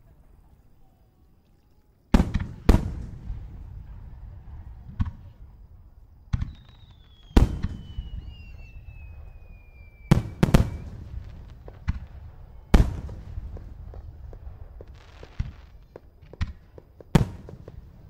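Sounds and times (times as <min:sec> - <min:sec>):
firework shells bursting: 0:06.2 - 0:18.0
thin firework whistle: 0:06.3 - 0:13.2.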